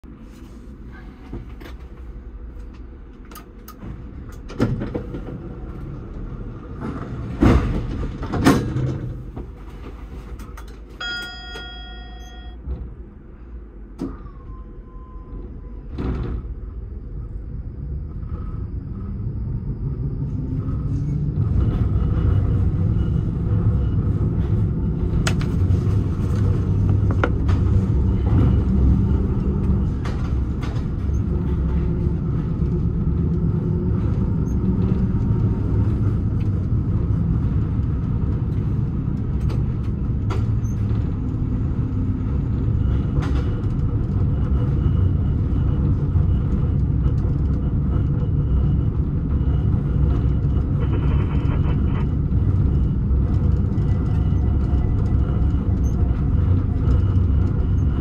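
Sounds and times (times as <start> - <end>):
tram running rumble: 0.0 - 58.0
brief electronic chime: 11.0 - 12.6.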